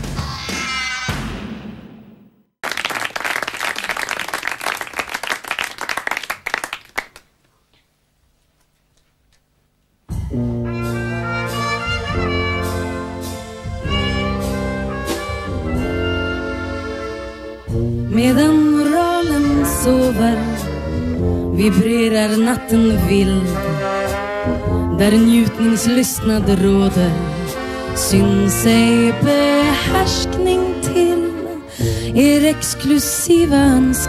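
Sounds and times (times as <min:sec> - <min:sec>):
people clapping: 0:02.6 - 0:07.5
small band playing cabaret music: 0:10.1 - 0:34.0.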